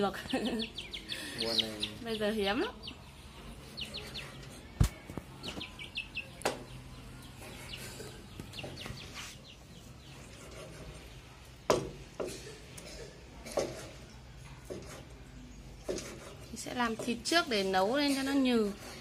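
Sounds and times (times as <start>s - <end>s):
chickens clucking: 0.0s - 11.1s
chicks peeping: 0.1s - 11.2s
sharp knocks: 11.7s - 12.5s.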